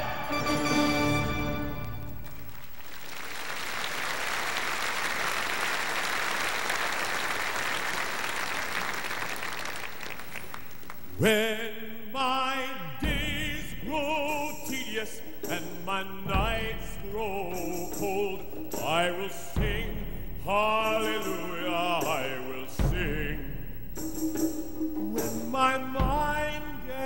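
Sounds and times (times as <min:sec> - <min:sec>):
audience applauding: 0:01.6 - 0:11.2
man singing with vibrato: 0:11.2 - 0:24.2, 0:25.0 - 0:27.0.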